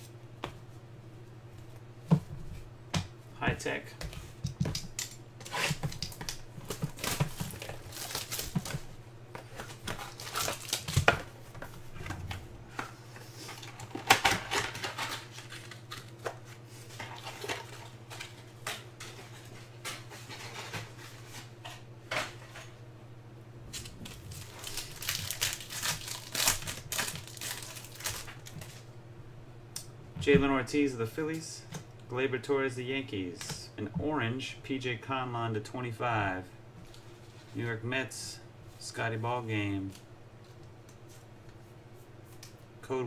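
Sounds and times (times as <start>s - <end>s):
low steady hum: 0.0s - 43.0s
foil wrappers crinkling and tearing: 5.4s - 8.9s, 9.6s - 11.2s, 13.5s - 16.2s, 23.7s - 28.8s.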